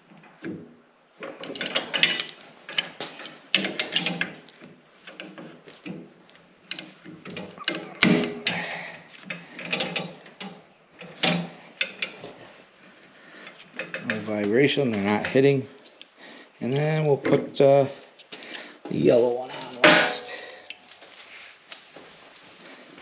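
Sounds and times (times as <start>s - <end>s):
metal fittings clinking and rattling: 1.2s - 4.4s.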